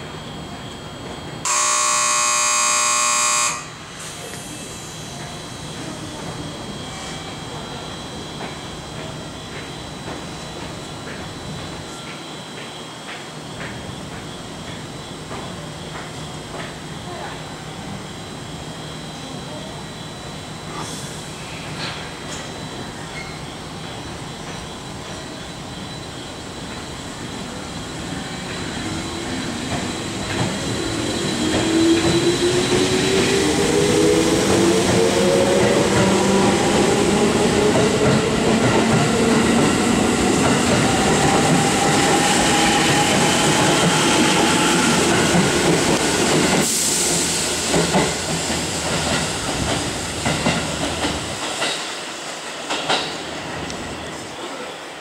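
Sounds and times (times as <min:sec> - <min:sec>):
rumble of train cars: 0:00.0 - 0:55.0
train traction motors whining: 0:01.0 - 0:12.2.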